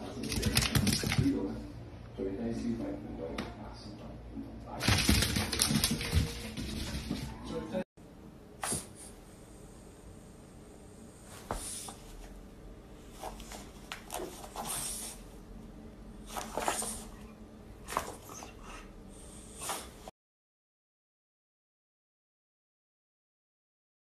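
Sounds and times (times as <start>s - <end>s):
dog sniffing: 13.1s - 15.3s, 18.0s - 20.1s.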